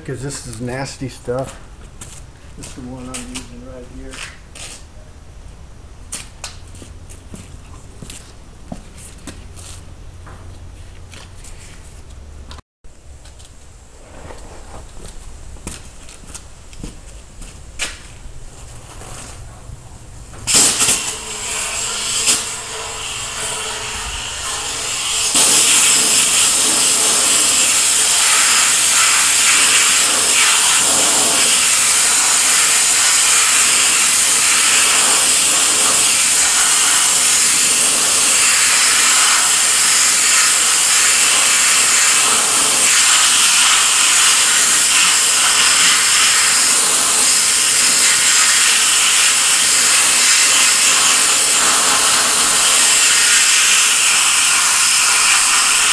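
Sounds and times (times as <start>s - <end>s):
sandblaster nozzle hissing: 20.4s - 55.9s.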